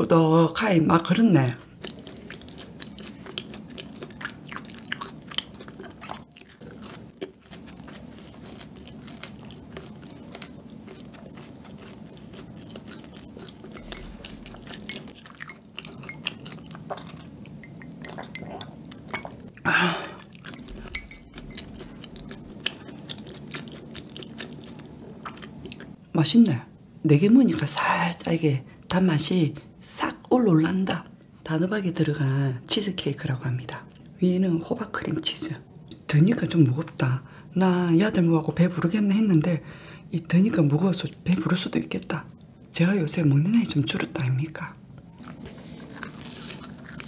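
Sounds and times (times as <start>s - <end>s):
close chewing with crunches: 1.4s - 19.6s, 20.2s - 26.0s, 45.0s - 47.0s.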